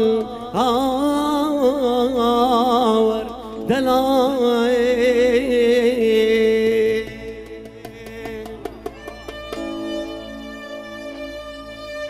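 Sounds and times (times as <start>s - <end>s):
man singing ornamented vocal: 0.0s - 9.0s.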